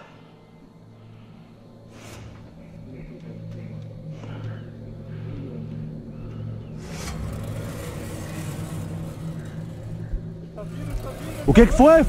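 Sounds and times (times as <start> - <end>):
car engine idling: 2.9 - 12.0
rushing rustling noise: 6.8 - 12.0.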